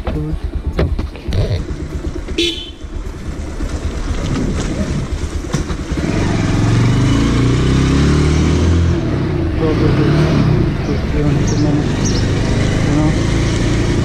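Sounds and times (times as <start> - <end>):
motorcycle engine pulling away: 0.3 - 14.0
motorcycle horn toot: 2.3 - 3.0.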